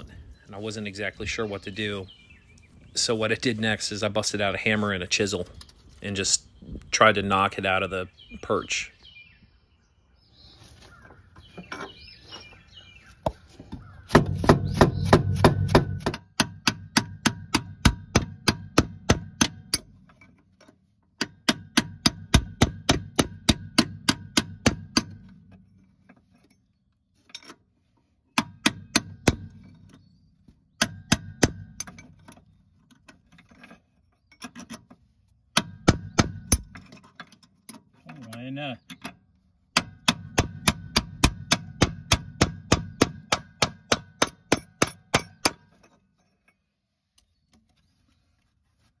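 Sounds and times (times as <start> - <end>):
hammer striking chisel on metal: 39.8 - 45.6.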